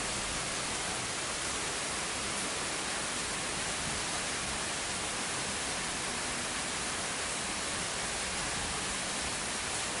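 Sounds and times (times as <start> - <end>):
steady rain hiss: 0.0 - 10.0.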